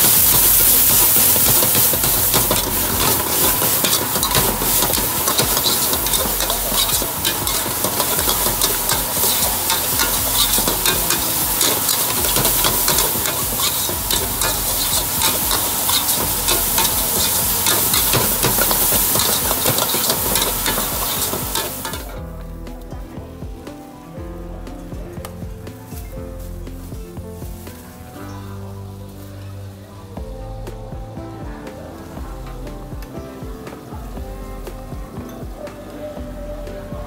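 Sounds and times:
metal spatula scraping wok: 0:00.0 - 0:22.2
loud sizzling: 0:00.0 - 0:23.1.

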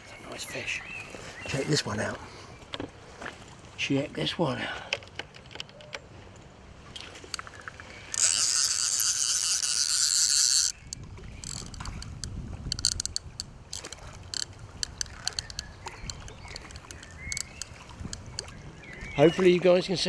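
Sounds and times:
fish splashing: 0:06.8 - 0:19.0
fishing reel ratchet buzzing: 0:08.0 - 0:15.6, 0:16.5 - 0:18.2
scattered clicks: 0:08.1 - 0:18.5.

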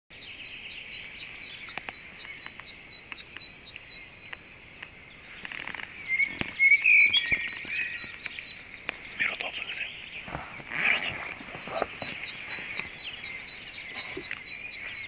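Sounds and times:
songbirds chirping: 0:00.1 - 0:15.0
faint clicks: 0:01.6 - 0:09.7, 0:13.9 - 0:14.6
whistled bird notes rising: 0:06.0 - 0:08.6.

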